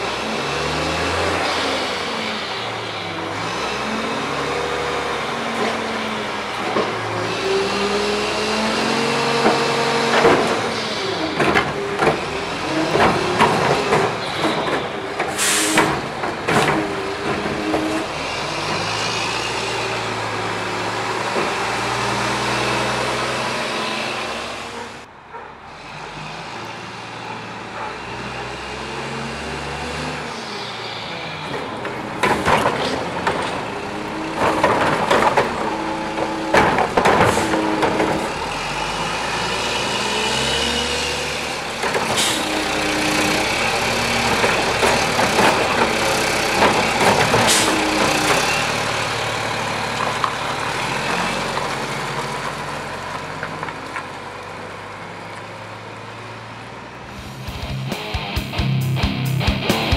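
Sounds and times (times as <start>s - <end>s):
diesel engine revving: 0.0s - 59.9s
sharp clanks and bangs: 8.8s - 19.0s, 31.5s - 38.4s, 44.2s - 48.6s.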